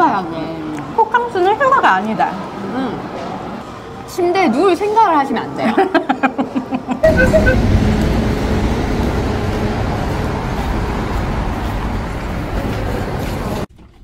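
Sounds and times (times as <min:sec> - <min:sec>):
road traffic rumble: 0:07.0 - 0:13.7.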